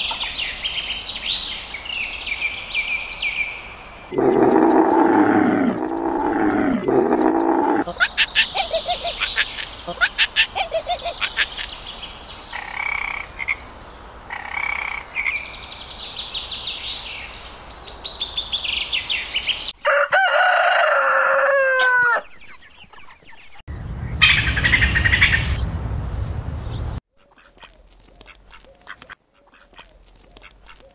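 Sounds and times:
faint clicks: 4.1 - 7.8
rooster crowing: 19.8 - 22.3.

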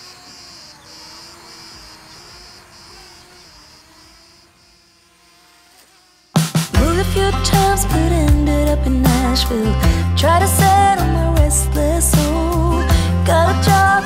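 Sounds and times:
drone propeller hum: 0.0 - 5.6
crickets chirping: 0.0 - 6.4.

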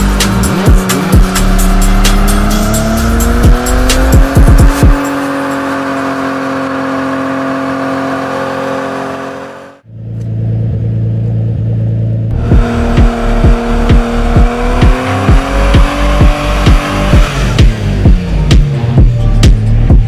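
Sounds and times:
electronic music with kick drum: 0.0 - 5.2, 12.3 - 20.0
car engine at high revs: 0.0 - 20.0.

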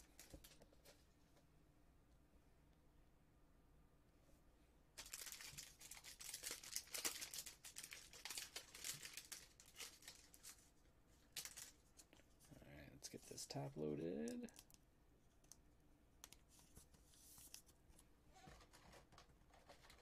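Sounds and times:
plastic packaging crinkling: 5.0 - 12.2, 18.5 - 20.0.

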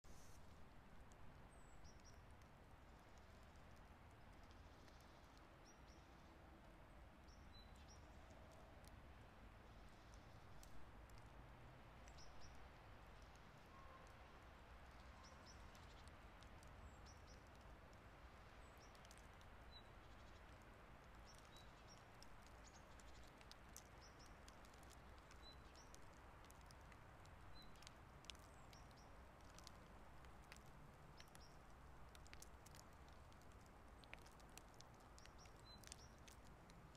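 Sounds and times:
soft ticks: 1.8 - 6.3, 9.6 - 11.4, 12.0 - 36.9.

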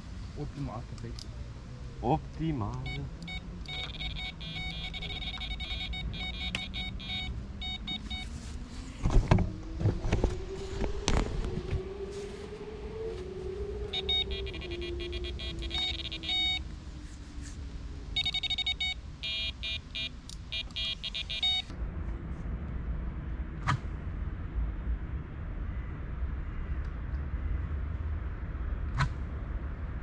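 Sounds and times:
bite alarms beeping: 2.8 - 8.3, 13.9 - 16.6, 18.2 - 21.7.

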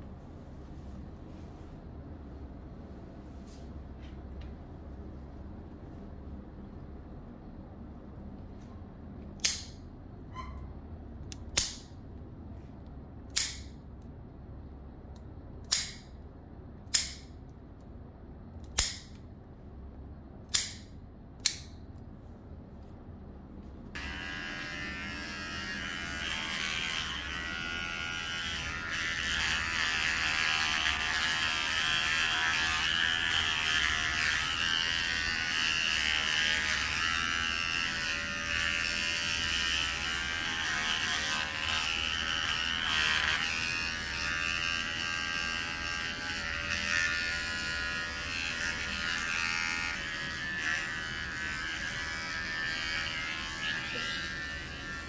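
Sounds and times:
electric clipper buzzing: 23.9 - 55.0.

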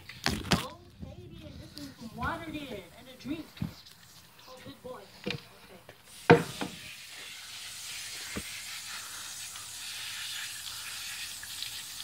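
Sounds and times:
hose spraying water on concrete: 6.0 - 12.0
loud knock: 6.3 - 6.7.

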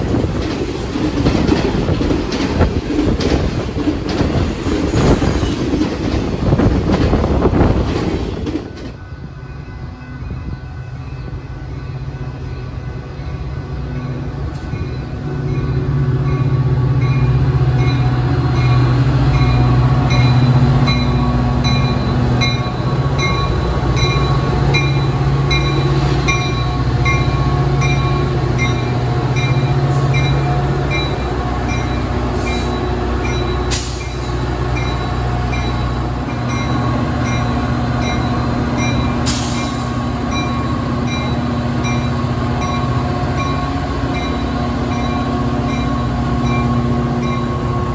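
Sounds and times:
diesel locomotive engine drone: 0.0 - 47.9
steel wheels on rail: 0.0 - 47.9
level-crossing bell dinging: 40.3 - 47.9.

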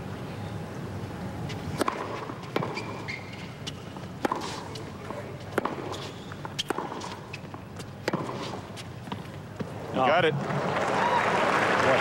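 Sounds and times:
tennis ball strikes: 1.7 - 3.2, 4.2 - 9.3.

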